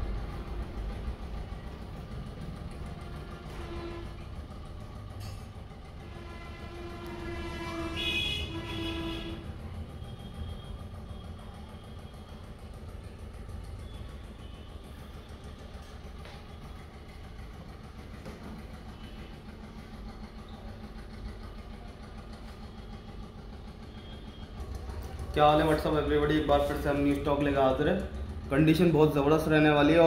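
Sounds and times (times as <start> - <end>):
engine and traffic rumble: 0.0 - 30.0
horn honking: 3.0 - 4.5, 6.0 - 10.6.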